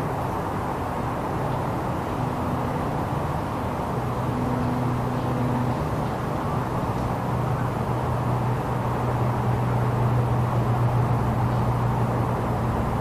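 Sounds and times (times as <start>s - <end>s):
motor running with low drone: 0.0s - 13.0s
rushing noise: 0.0s - 13.0s.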